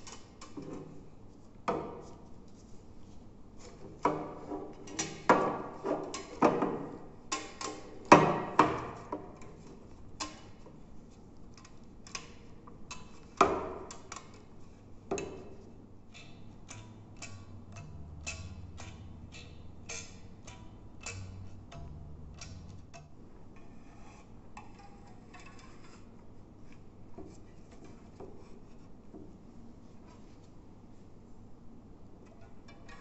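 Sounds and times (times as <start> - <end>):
rubber bands twanging: 16.6 - 23.2.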